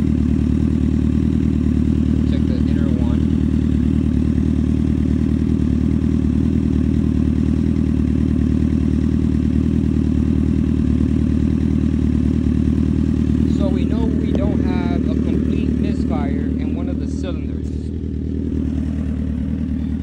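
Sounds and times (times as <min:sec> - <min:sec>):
motorcycle engine idling: 0:00.0 - 0:20.0.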